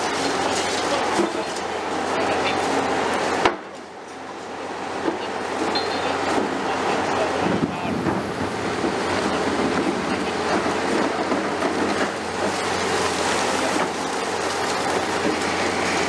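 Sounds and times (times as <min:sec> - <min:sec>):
falling rubble rattling: 0:00.0 - 0:02.0
excavator engine hum: 0:00.0 - 0:16.0.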